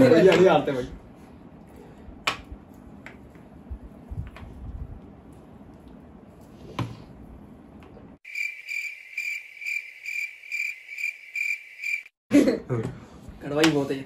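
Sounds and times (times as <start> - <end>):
cricket chirping: 8.2 - 12.2.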